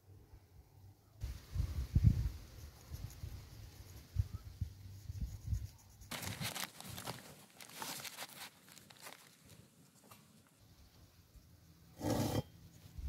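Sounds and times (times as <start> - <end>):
paper crinkling and rustling: 6.1 - 10.4.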